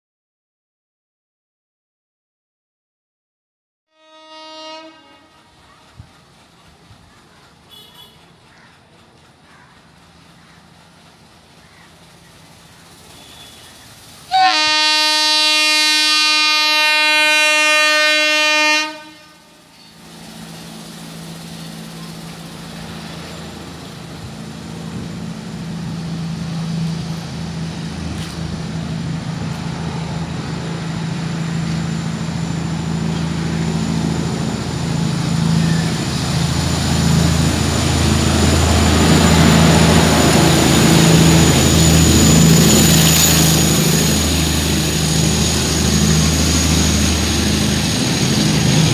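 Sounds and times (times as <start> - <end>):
locomotive horn blast: 3.9 - 5.6, 7.7 - 8.3, 13.1 - 19.7
train rumbling past: 4.0 - 48.9.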